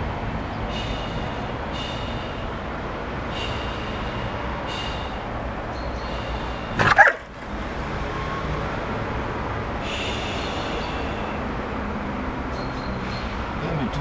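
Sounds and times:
small dog barking sharply: 6.8s - 7.3s.

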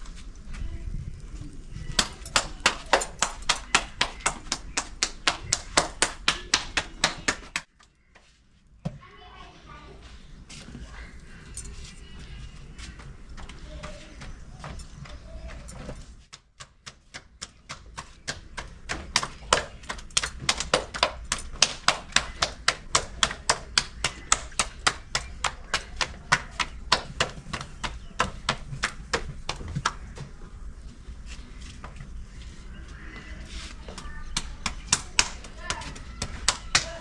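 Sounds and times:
hands slapping dough: 1.9s - 7.7s, 16.2s - 30.4s, 33.9s - 37.0s.

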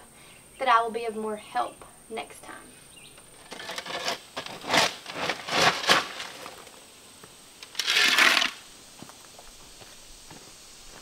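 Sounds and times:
shovel scraping gravelly soil: 3.3s - 6.8s, 7.6s - 8.7s
shovel scooping dirt: 3.4s - 6.8s, 7.6s - 8.6s.

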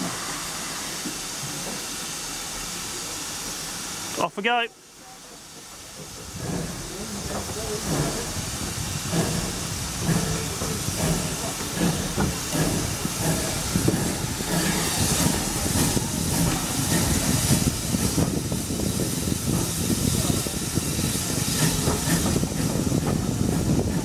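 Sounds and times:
steam hissing: 0.0s - 24.0s
steam locomotive exhaust chuffs: 5.2s - 24.0s.

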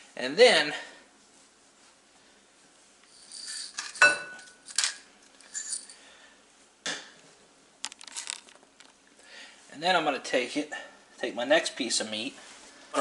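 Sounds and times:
ringing dish clink: 4.0s - 4.6s.

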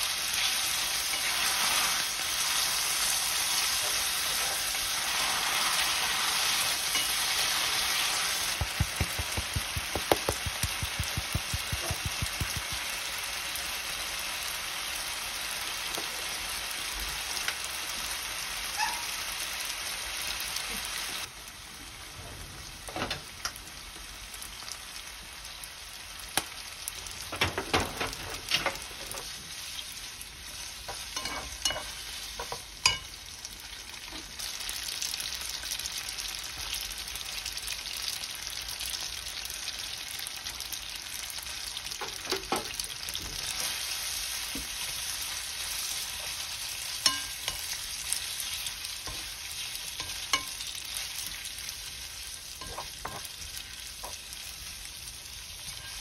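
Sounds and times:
food sizzling in oil: 0.0s - 22.0s, 23.2s - 56.0s
spatula tapping and scraping pan: 8.5s - 12.8s, 30.9s - 33.1s, 47.0s - 47.7s, 50.0s - 50.6s, 52.6s - 53.3s.

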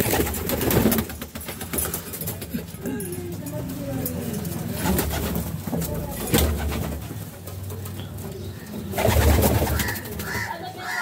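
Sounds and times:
pigeons cooing: 4.2s - 11.0s.

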